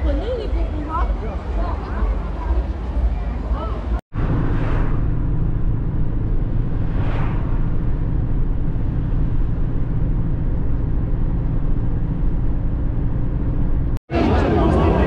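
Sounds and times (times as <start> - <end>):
car engine and road noise: 0.0 - 15.0
car passing with whoosh: 4.1 - 12.6.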